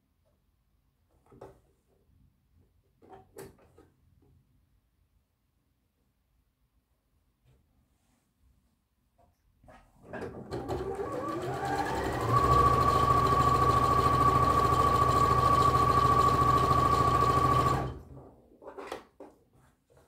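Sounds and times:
sewing machine stitching: 10.0 - 18.2.

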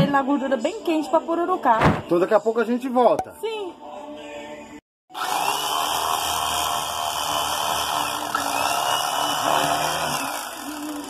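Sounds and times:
electric carving knife buzzing: 5.1 - 11.0.

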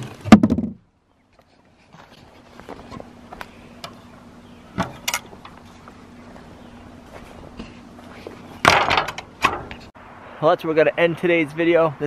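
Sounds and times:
faint steady hum: 0.0 - 10.4
gate knock: 8.6 - 9.7.

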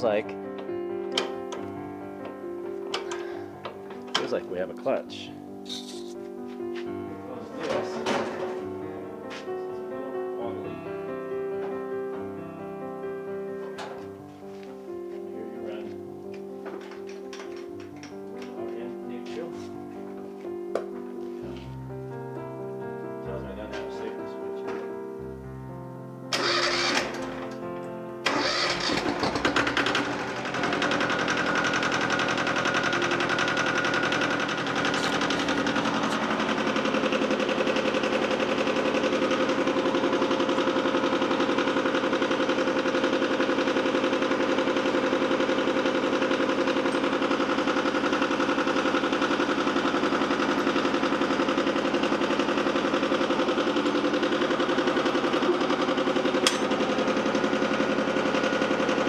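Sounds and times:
tractor diesel engine clatter: 26.4 - 27.4, 28.3 - 59.0.

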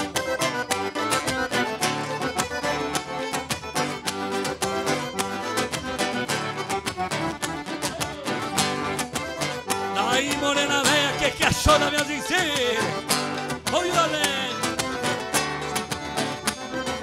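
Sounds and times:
band playing dance music: 6.6 - 17.0.

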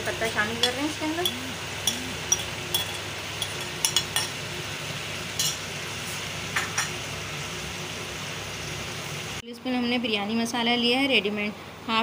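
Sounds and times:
chicken sizzling in hot fat: 0.0 - 9.4
metal spoon clinking and scraping: 0.6 - 4.4, 5.4 - 5.6.

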